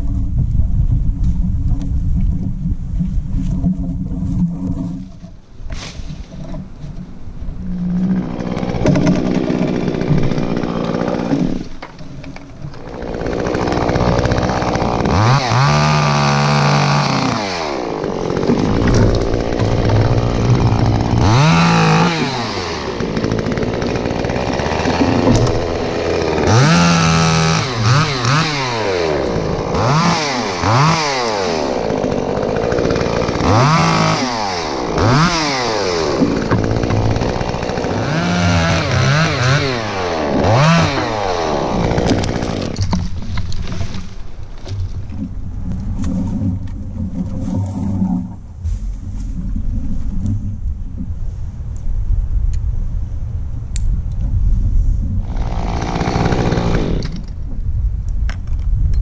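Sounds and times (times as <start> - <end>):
chainsaw engine revving: 8.0 - 11.8, 12.7 - 43.0, 55.2 - 57.3.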